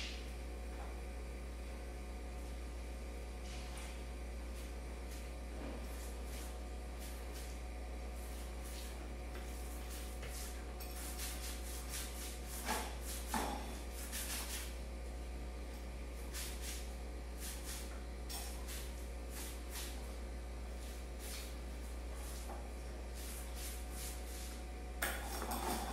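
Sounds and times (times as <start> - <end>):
steady low hum: 0.0 - 25.9
paint rubbing strokes on wall: 4.5 - 14.8, 16.2 - 20.1, 20.7 - 24.6.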